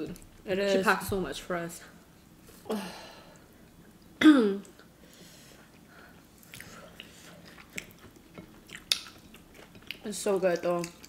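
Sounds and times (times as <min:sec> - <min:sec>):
chewing mouth clicks and smacks: 0:06.4 - 0:11.0.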